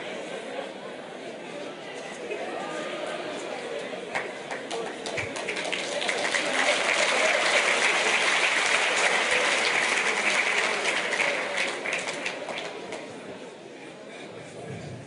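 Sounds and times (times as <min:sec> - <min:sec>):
audience applauding: 0:04.1 - 0:13.1.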